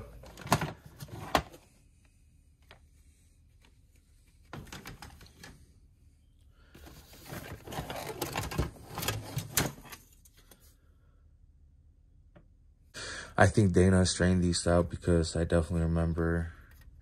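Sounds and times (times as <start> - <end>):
car parts clattering in a box: 7.0 - 10.0.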